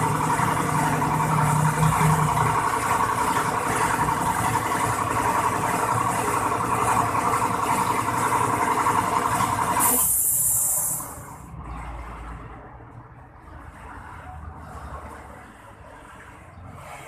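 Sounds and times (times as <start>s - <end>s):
air compressor running: 0.0s - 11.4s
unloader valve hiss: 9.8s - 11.3s.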